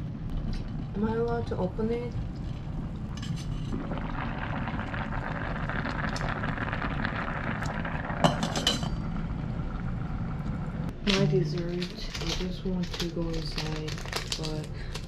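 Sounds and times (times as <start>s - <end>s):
water and rice boiling: 0.3s - 15.0s.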